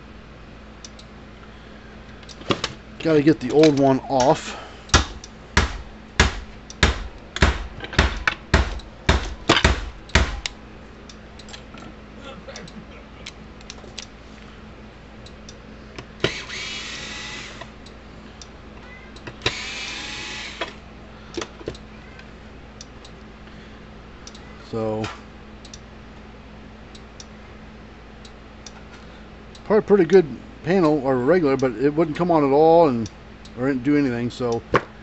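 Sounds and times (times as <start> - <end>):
sharp knocks on metal device: 4.9 - 10.5
rasping bursts: 19.4 - 20.6
light clicks: 24.2 - 25.9.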